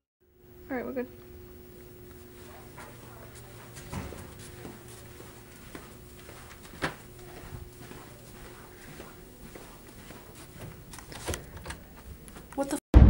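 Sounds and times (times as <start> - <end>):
faint steady hum: 0.2 - 12.7
footsteps on carpet: 1.8 - 11.3.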